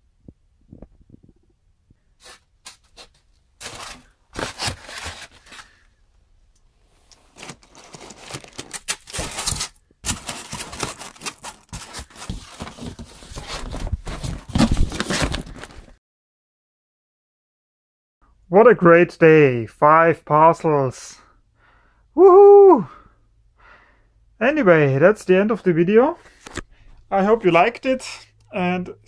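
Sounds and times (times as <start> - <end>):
foam and cardboard rubbing: 7.4 - 15.5.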